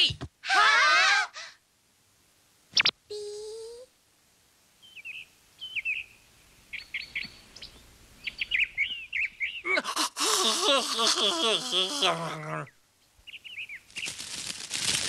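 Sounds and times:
small birds chirping: 2.7s - 3.8s, 4.8s - 14.4s
man screaming: 9.7s - 12.7s.

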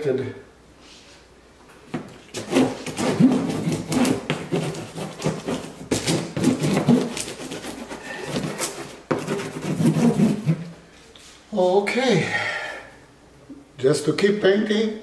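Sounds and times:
packing tape rasping off tape gun: 2.3s - 10.6s.

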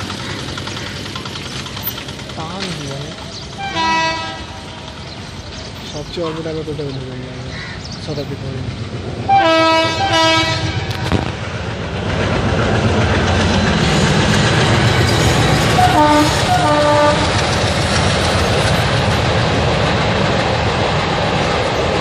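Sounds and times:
train rumbling on rails: 0.0s - 22.0s
locomotive horn blasts: 3.6s - 4.6s, 9.3s - 11.2s, 15.7s - 17.4s.

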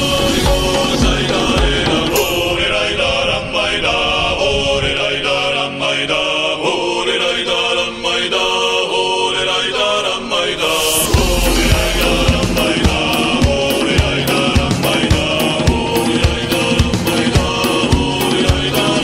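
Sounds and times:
sustained tones: 0.0s - 4.2s, 10.2s - 14.6s
voices singing a chant: 0.0s - 19.0s.

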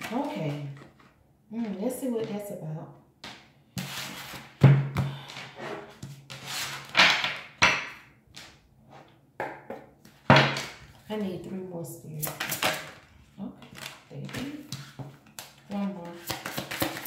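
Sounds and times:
cards shuffling: 13.7s - 17.0s.

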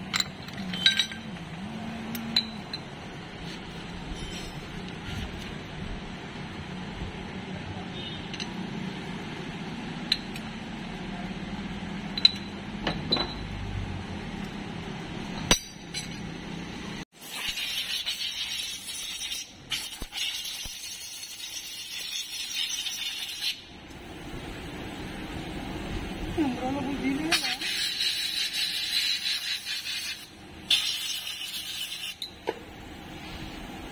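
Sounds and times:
metallic clinks and taps: 0.0s - 1.5s, 2.1s - 3.0s, 12.1s - 13.5s
rough hiss: 27.3s - 32.2s.

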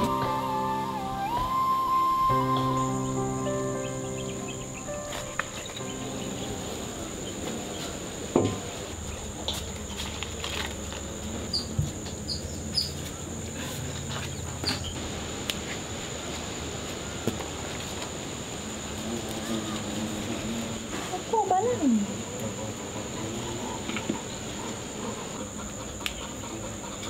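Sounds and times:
high-pitched insect drone: 0.0s - 8.6s.

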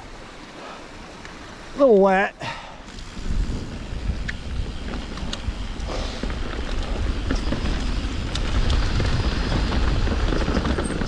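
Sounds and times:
clicks and rattles on rocky trail: 2.5s - 11.0s
wind rumbling on microphone: 2.8s - 11.0s.

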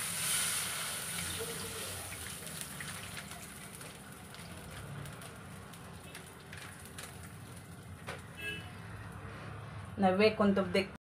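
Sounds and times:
milk pouring into pan: 0.0s - 8.6s
hot fat crackling and sizzling: 0.0s - 9.6s.

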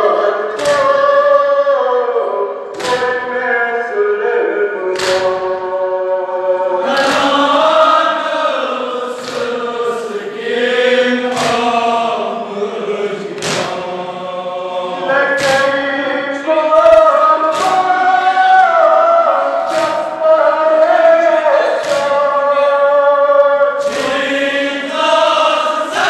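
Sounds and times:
men chanting a lament: 0.0s - 26.0s
hands slapping chests: 0.5s - 1.0s, 2.7s - 3.1s, 4.9s - 5.6s, 6.8s - 9.7s, 11.2s - 12.1s, 13.2s - 14.2s, 15.4s - 15.9s, 16.8s - 18.8s, 19.6s - 20.3s, 21.7s - 22.4s, 23.8s - 25.3s.

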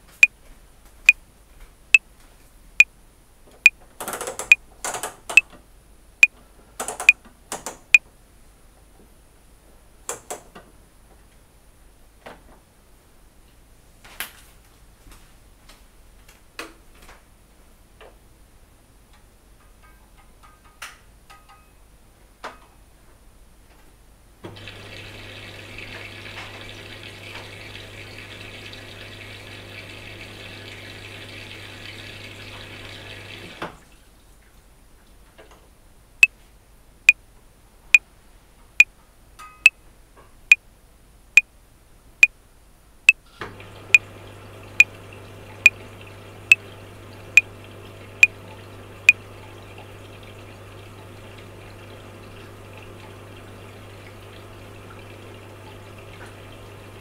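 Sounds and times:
faint clicks and drips: 3.5s - 5.6s, 6.2s - 8.1s, 43.1s - 56.7s
washing machine motor turning drum: 24.5s - 33.6s, 43.5s - 57.0s.

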